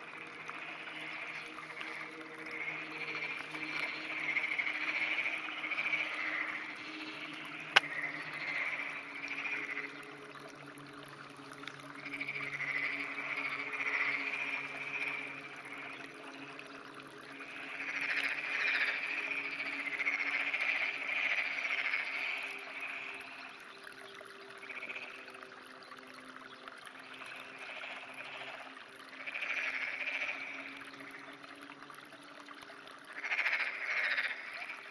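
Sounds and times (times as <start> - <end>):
frog croaking: 0.0 - 10.1, 11.9 - 16.6, 17.3 - 23.6, 24.6 - 25.3, 27.2 - 31.4, 33.1 - 34.9.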